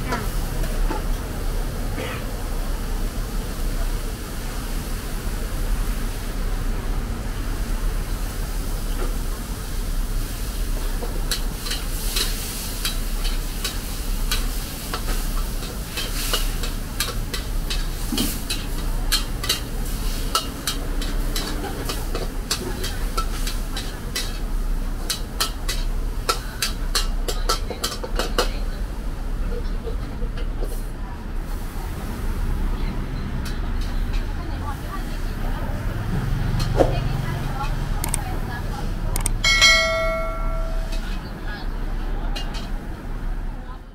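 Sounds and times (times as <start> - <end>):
food sizzling: 0.2 - 28.0.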